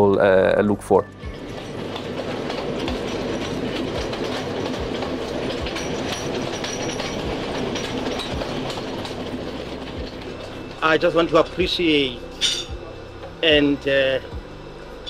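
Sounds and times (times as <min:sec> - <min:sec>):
train rumbling: 0:00.1 - 0:15.0
wheels knocking over rail joints: 0:01.2 - 0:12.8.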